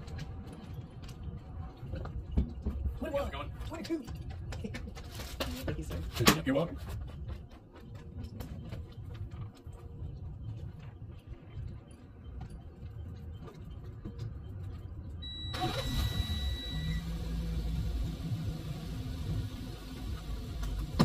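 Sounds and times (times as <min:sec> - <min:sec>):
vehicle engine rumble: 0:07.1 - 0:21.0.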